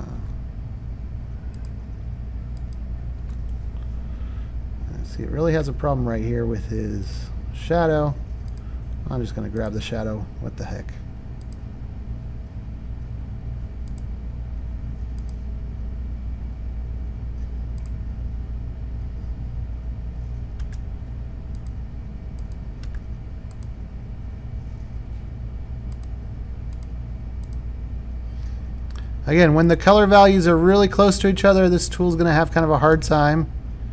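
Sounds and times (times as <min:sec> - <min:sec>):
steady low hum: 0:00.0 - 0:33.9
computer mouse clicking: 0:01.5 - 0:01.8, 0:11.4 - 0:11.6, 0:13.8 - 0:14.1, 0:15.2 - 0:15.4, 0:17.7 - 0:18.0, 0:20.5 - 0:20.8, 0:21.5 - 0:21.8, 0:22.4 - 0:23.8, 0:25.9 - 0:26.1, 0:26.7 - 0:27.6.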